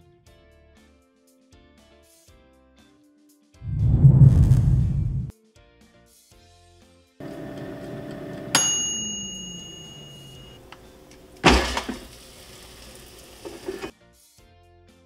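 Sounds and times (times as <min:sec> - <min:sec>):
air fryer fan humming: 0:07.2 - 0:13.9
bell ding: 0:08.6 - 0:10.6.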